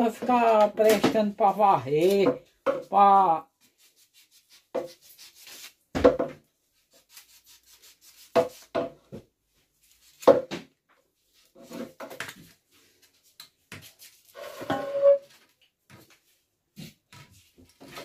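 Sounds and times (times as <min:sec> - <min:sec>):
knife scraping wooden handle: 0:11.5 - 0:12.2.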